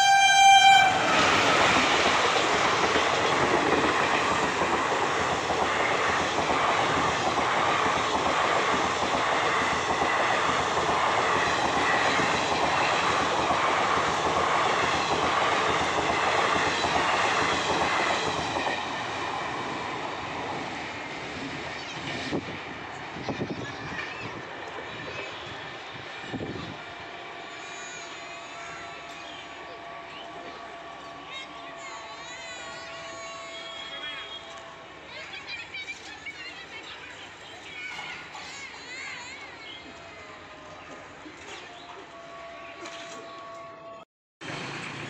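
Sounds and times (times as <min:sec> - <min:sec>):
locomotive horn: 0:00.0 - 0:01.7, 0:26.8 - 0:35.1, 0:41.6 - 0:44.1
train coaches passing at speed: 0:00.0 - 0:45.0.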